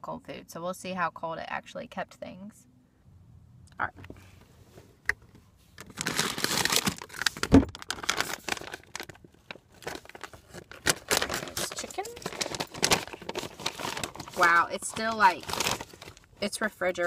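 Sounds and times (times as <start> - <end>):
plastic pouch crinkling and tearing: 5.8 - 16.4.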